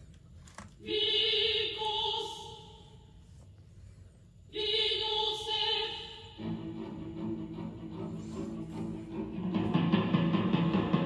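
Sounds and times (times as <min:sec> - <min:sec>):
music with guitar and drums: 0:09.2 - 0:11.0.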